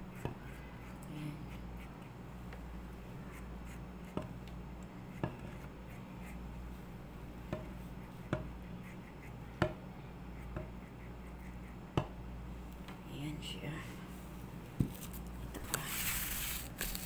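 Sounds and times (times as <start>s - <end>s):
steady low hum: 0.0s - 17.0s
pastry brush brushing dough: 15.7s - 17.0s.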